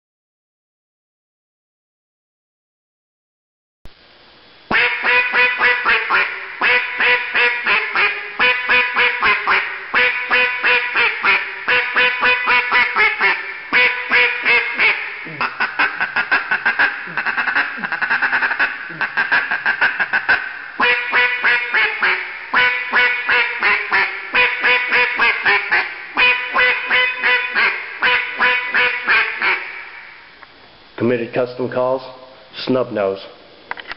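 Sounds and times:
raspy duck call quacking: 0:04.7 - 0:30.1.

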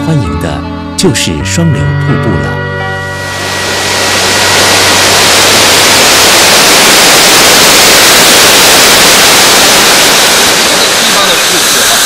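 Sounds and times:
waterfall rushing: 0:03.2 - 0:12.0.

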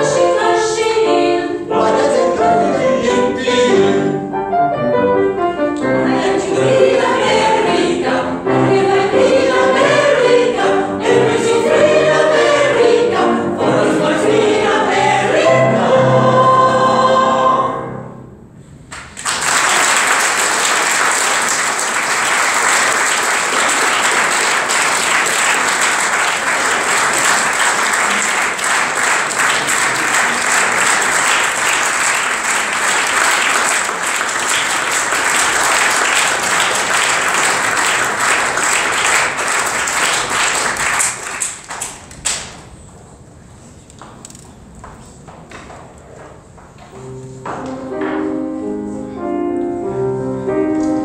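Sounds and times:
group of singers singing: 0:00.0 - 0:04.3, 0:05.8 - 0:18.2
audience applauding: 0:18.9 - 0:42.8.

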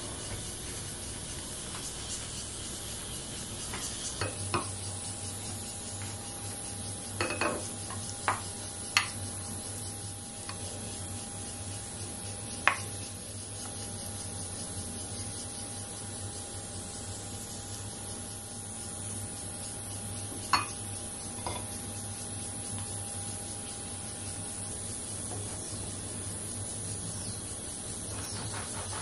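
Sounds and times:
steady hiss: 0:00.0 - 0:29.0
wooden spoon scraping and tapping: 0:07.2 - 0:09.2.

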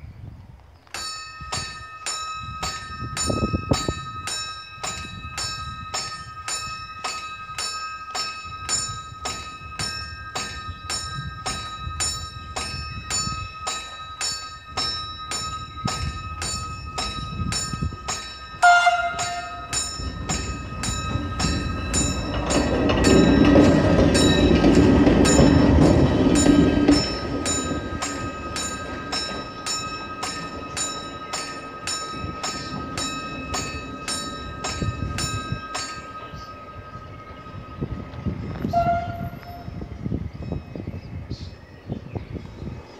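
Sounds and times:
train rumble: 0:00.0 - 0:42.9
level-crossing warning bell: 0:00.8 - 0:42.9
train horn blast: 0:18.6 - 0:19.7, 0:38.6 - 0:39.8.

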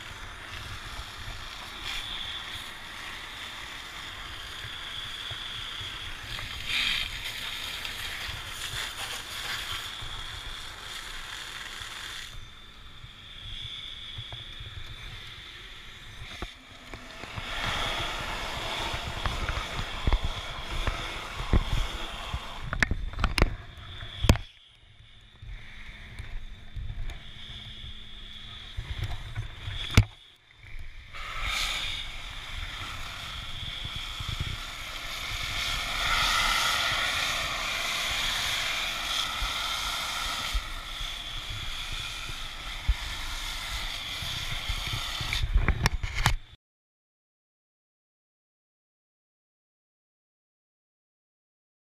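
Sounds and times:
hose nozzle spraying foam: 0:00.0 - 0:12.4, 0:31.1 - 0:45.6.

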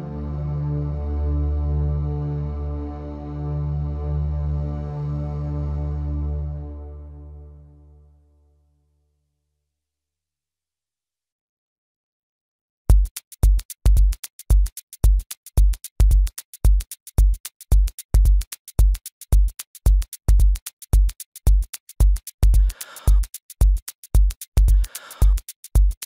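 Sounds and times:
drum machine beat: 0:12.9 - 0:26.0.

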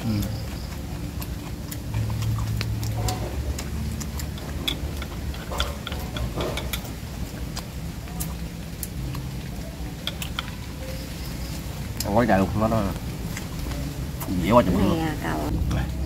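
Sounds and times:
chewing crispy food: 0:00.0 - 0:16.0
chopsticks clicking on bowls: 0:00.1 - 0:09.3, 0:09.9 - 0:10.9.

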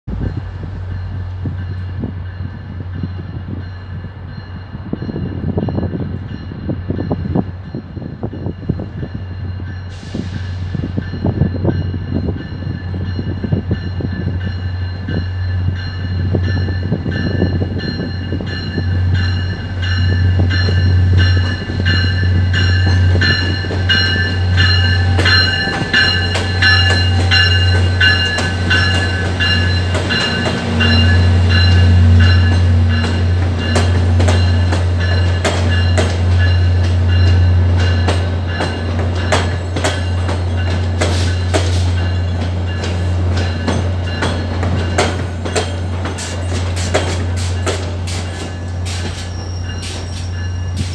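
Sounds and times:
diesel locomotive engine rumble: 0:00.0 - 0:50.9
locomotive bell ringing: 0:00.2 - 0:50.9
train wheels clicking over rail joints: 0:15.9 - 0:50.9.

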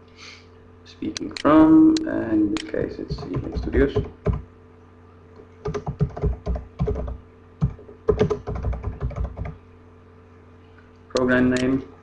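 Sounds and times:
steady low hum: 0:00.0 - 0:12.0
keyboard typing clicks: 0:01.2 - 0:04.4, 0:05.6 - 0:09.6.

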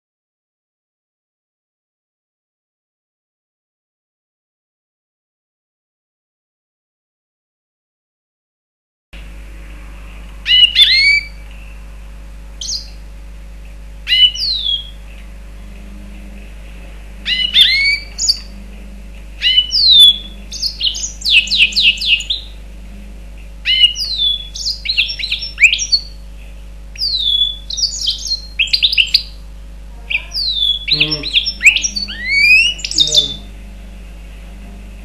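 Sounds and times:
steady low hum: 0:09.2 - 0:35.0
finch singing whistled notes: 0:10.4 - 0:11.4, 0:12.6 - 0:13.0, 0:14.1 - 0:15.0, 0:17.3 - 0:18.5, 0:19.4 - 0:22.5, 0:23.6 - 0:26.2, 0:27.0 - 0:29.4, 0:30.1 - 0:33.5.

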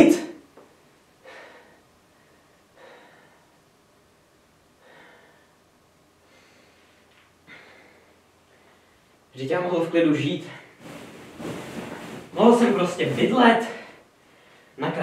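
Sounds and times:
man breathing heavily: 0:01.2 - 0:03.6, 0:04.8 - 0:05.6, 0:06.2 - 0:09.2.

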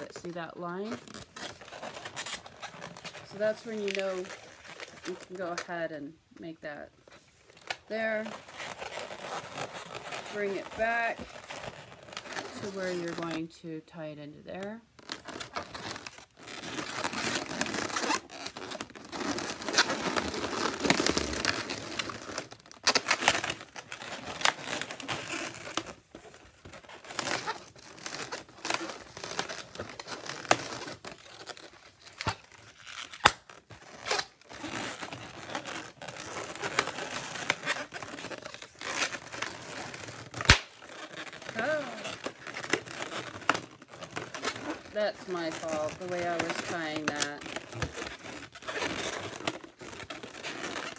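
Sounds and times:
balloons squeaking and crinkling: 0:00.0 - 0:50.9
balloon snaps: 0:40.4 - 0:40.8.

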